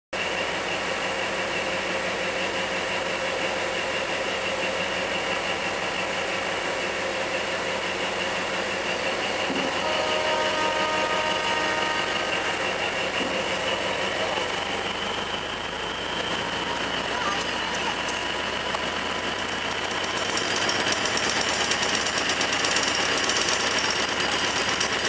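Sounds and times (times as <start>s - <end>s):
diesel train engine and rail noise: 0.1s - 25.0s
high whine: 0.2s - 18.8s
faint held tone: 9.2s - 14.8s.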